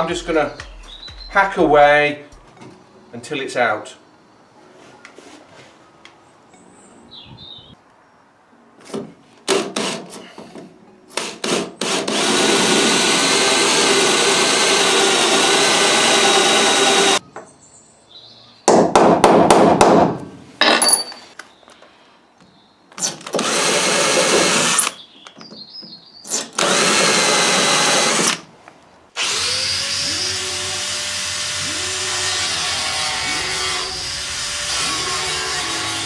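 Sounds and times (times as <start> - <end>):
cordless drill boring metal: 11.2 - 17.2, 23.0 - 24.9, 26.3 - 28.4, 29.2 - 36.0.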